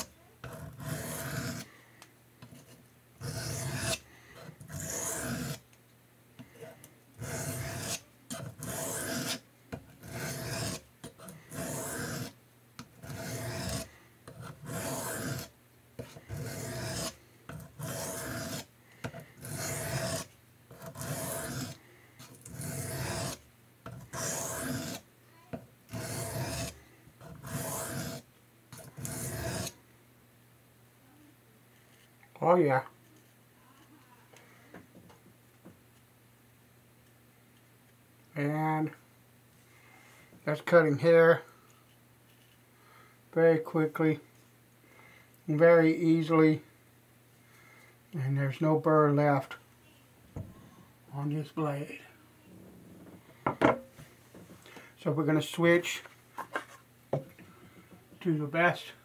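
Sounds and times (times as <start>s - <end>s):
knife scraping on sharpening plate: 7.2s - 9.4s, 13.1s - 13.8s, 14.4s - 25.0s, 25.9s - 26.8s, 28.8s - 29.7s.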